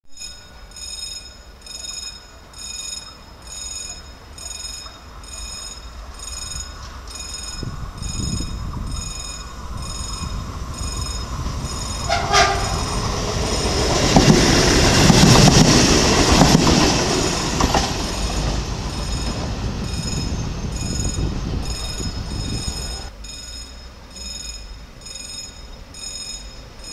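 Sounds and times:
train engine and wheel noise: 0.0s - 26.9s
train horn blast: 11.9s - 13.6s.

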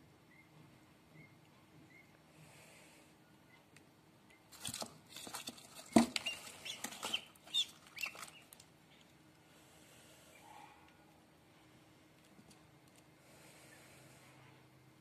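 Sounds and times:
duckling peeping: 0.3s - 2.2s, 5.8s - 9.0s.

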